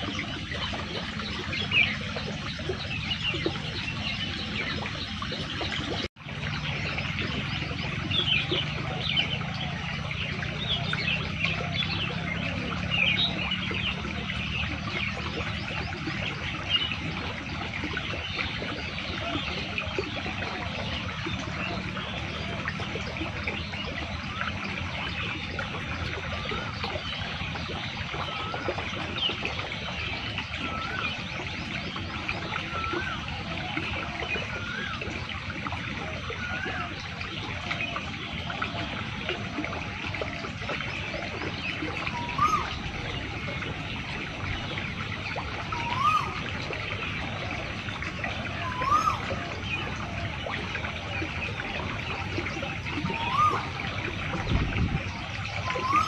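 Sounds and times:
water flowing and trickling: 0.0 - 56.0
bird whistling: 42.1 - 42.8, 45.7 - 46.4, 53.2 - 53.7, 55.6 - 56.0.

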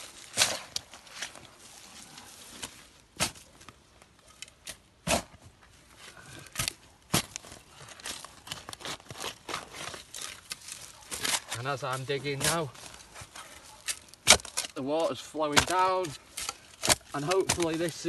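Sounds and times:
leaves crackling and rustling: 0.0 - 4.6, 5.7 - 18.0
thuds on wet soil and leaves: 14.2 - 16.2, 16.8 - 18.0.

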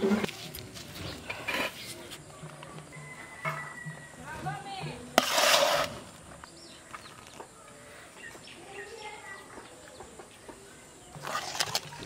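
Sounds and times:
ladle scraping steel bowl: 5.2 - 6.1.

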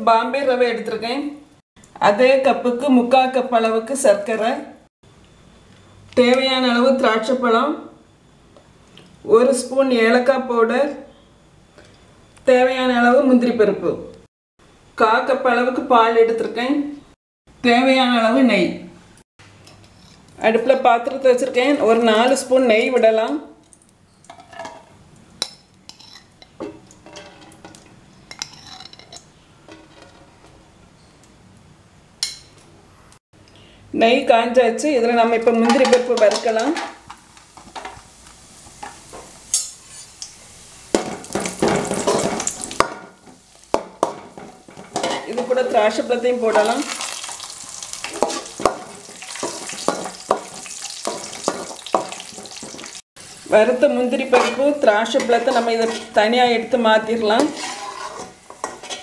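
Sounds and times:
nuts sizzling in oil: 36.4 - 59.0.

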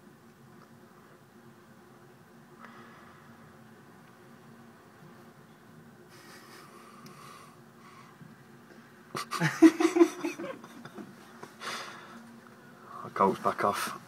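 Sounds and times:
faint room hum: 0.0 - 14.0
person laughing: 9.2 - 11.0.

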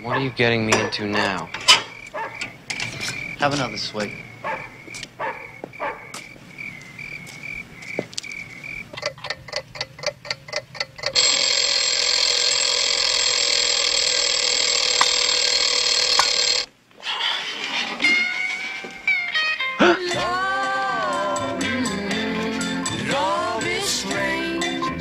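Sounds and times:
alarm clock ticking: 9.0 - 16.7
alarm clock bell ringing: 11.0 - 16.7.

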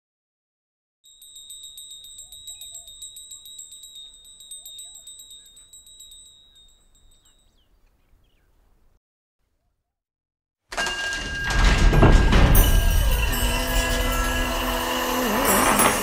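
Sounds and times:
high insect trill pulsing: 1.1 - 6.2
faint bird chirps: 2.2 - 3.5, 4.6 - 5.7, 6.5 - 9.0.

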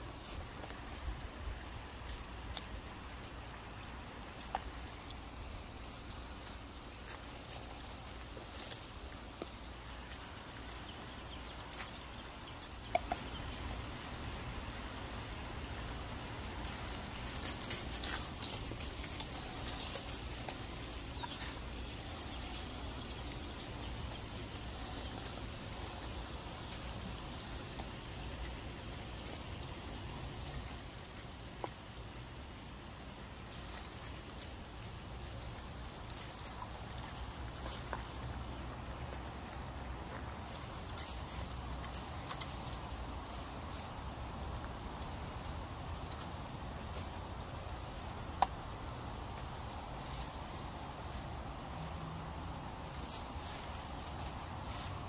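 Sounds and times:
puppies moving on gravel: 4.2 - 12.2, 16.4 - 29.5, 33.4 - 45.1, 48.9 - 55.0
puppy chewing on gravel: 16.6 - 21.8.

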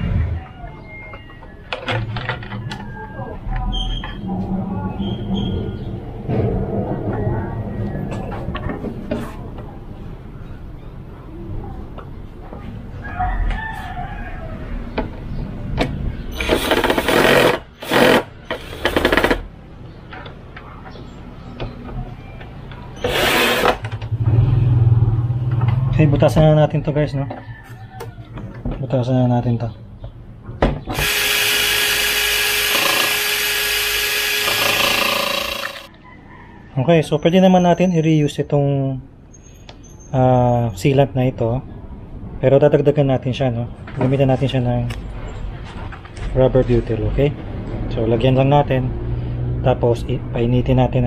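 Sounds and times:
rooster crowing: 0.0 - 1.8, 13.0 - 14.9, 27.1 - 28.4, 35.6 - 37.0
cordless drill on plastic: 16.4 - 19.4, 23.0 - 23.8, 30.9 - 35.9.

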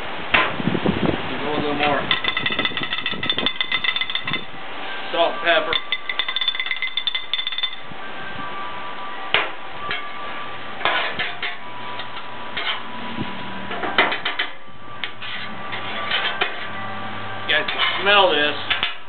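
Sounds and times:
metal spatulas clanking on griddle: 2.1 - 4.5, 5.7 - 7.8, 10.8 - 12.8, 13.7 - 16.7, 17.6 - 19.0.

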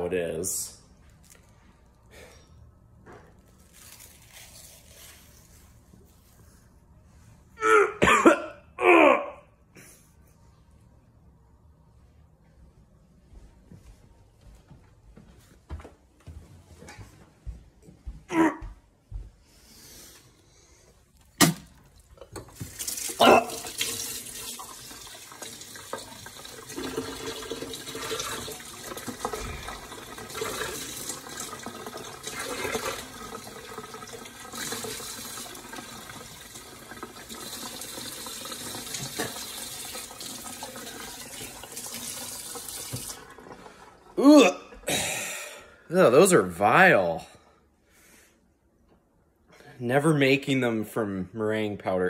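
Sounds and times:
tap running into sink: 38.8 - 39.7, 41.4 - 43.2.

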